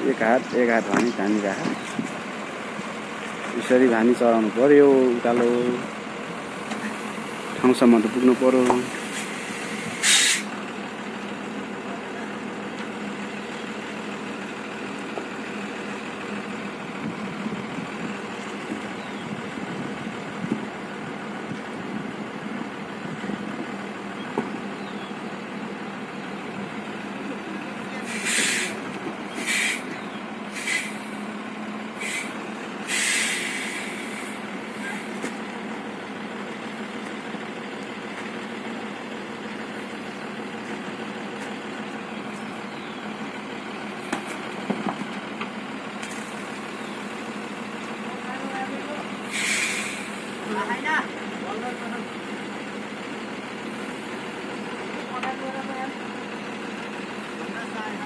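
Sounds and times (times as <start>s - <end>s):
diesel truck engine running: 0.0s - 58.0s
air brake hisses: 8.8s - 10.6s, 28.0s - 28.8s, 29.4s - 29.9s, 30.5s - 31.3s, 32.0s - 35.2s, 49.2s - 50.4s.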